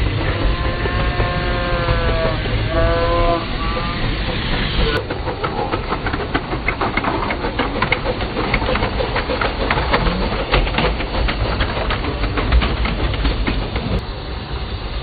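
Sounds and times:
wheels clicking over rail joints: 0:00.0 - 0:14.1
steam hiss: 0:00.0 - 0:15.0.

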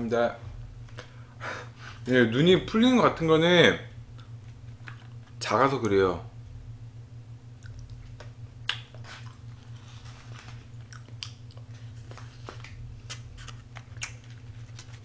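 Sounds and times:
steady low hum: 0:00.0 - 0:15.0
person chewing food: 0:07.6 - 0:09.9, 0:10.7 - 0:15.0.

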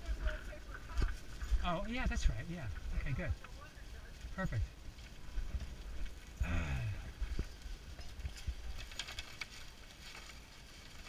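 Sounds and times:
wind rumble on microphone: 0:00.0 - 0:09.8
paper bag crinkling: 0:08.2 - 0:11.0.

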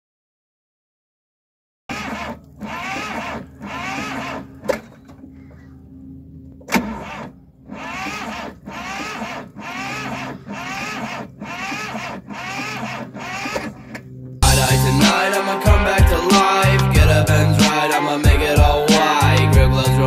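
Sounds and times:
starter motor cranking: 0:01.9 - 0:05.3, 0:06.6 - 0:14.4.

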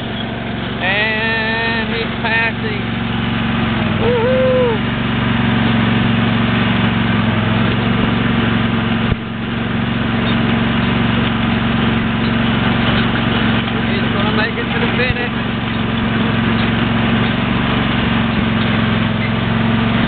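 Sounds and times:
motor running steadily: 0:00.0 - 0:20.0
rising-and-falling call: 0:04.0 - 0:04.9.

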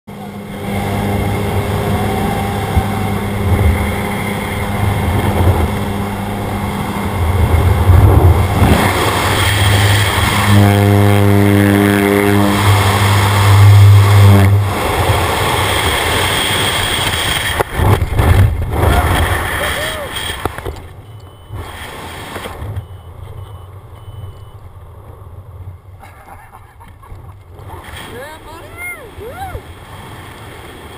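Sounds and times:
freefall wind rush: 0:00.1 - 0:20.6, 0:27.6 - 0:30.9
plane engine and propeller droning: 0:00.1 - 0:30.9.

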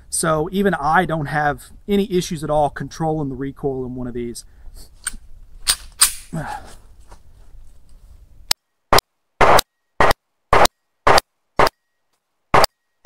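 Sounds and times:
pistol shots: 0:09.4 - 0:11.8.

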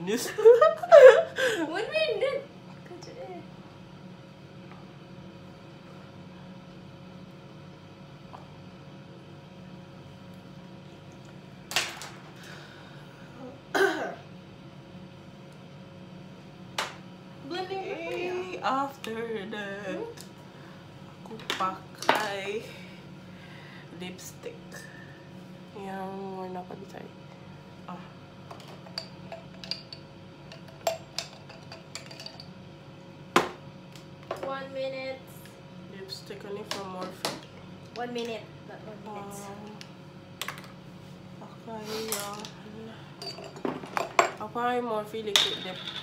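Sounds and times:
faint steady hum: 0:00.0 - 0:46.0
throat-clearing coughs: 0:13.7 - 0:14.2.

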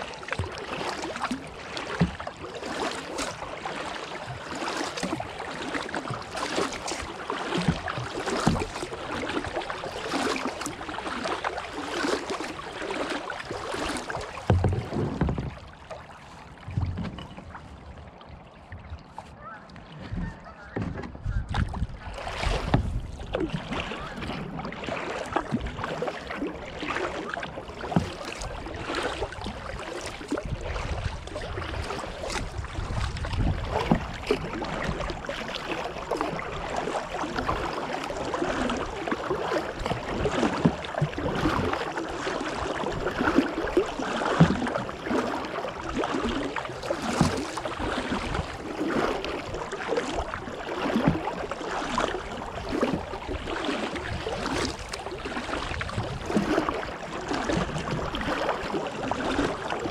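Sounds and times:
water dripping off paddle: 0:00.0 - 0:17.8, 0:21.5 - 0:59.9
paddle splashing: 0:00.0 - 0:59.9
water washing along hull: 0:00.0 - 0:59.9.

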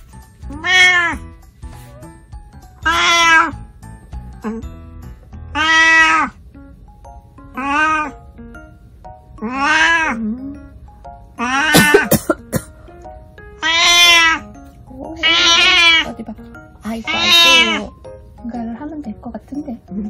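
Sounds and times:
cat meowing loudly: 0:00.5 - 0:01.2, 0:02.8 - 0:03.6, 0:05.5 - 0:06.4, 0:07.6 - 0:08.2, 0:09.4 - 0:10.2, 0:11.4 - 0:12.0, 0:13.6 - 0:14.4, 0:15.2 - 0:16.1, 0:17.0 - 0:17.9.

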